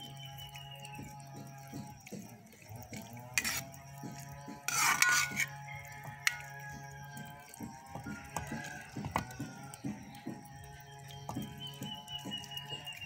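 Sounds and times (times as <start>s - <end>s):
metal spatula scraping a wok: 3.3s - 3.8s, 4.5s - 6.4s.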